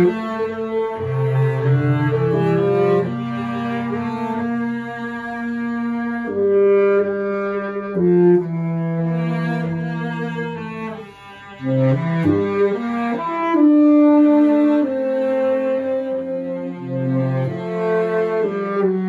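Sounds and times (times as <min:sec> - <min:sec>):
baritone saxophone: 0:00.0 - 0:19.0
cello bowing low line: 0:00.0 - 0:19.0.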